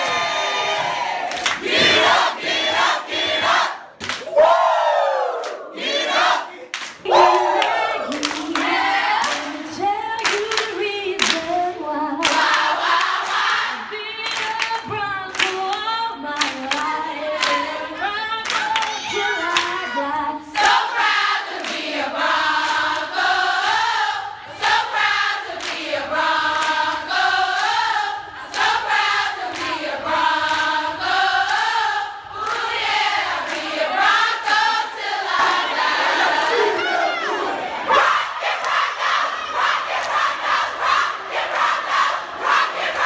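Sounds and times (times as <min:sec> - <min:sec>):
crowd singing together: 0:00.0 - 0:04.6, 0:05.6 - 0:10.8, 0:11.4 - 0:14.0, 0:16.5 - 0:43.0
hand claps: 0:04.0 - 0:04.3, 0:06.7 - 0:09.6, 0:10.2 - 0:11.5, 0:12.2 - 0:13.5, 0:14.2 - 0:17.6, 0:18.4 - 0:19.8, 0:25.5 - 0:25.9, 0:29.4 - 0:29.8.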